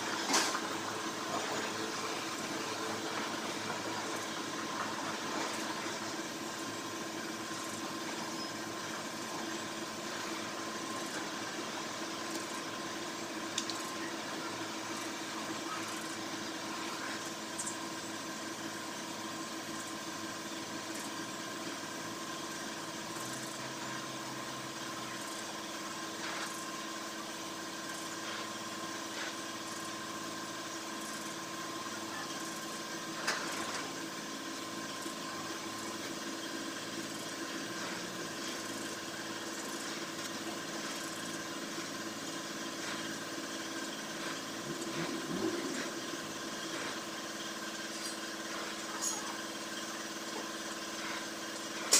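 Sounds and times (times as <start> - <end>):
steady hum: 0.0 - 51.9.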